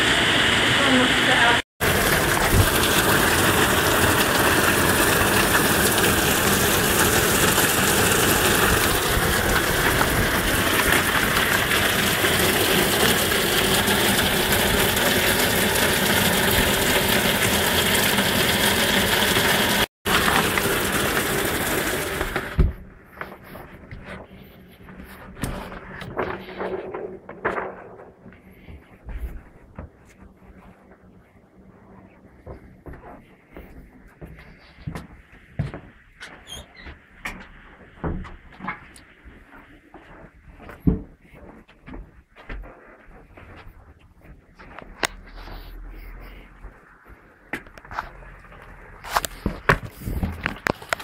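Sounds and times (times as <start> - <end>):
torrential rain: 0.0 - 22.8, 47.6 - 51.0
water pouring off roof gutter: 1.8 - 22.7, 47.7 - 51.0.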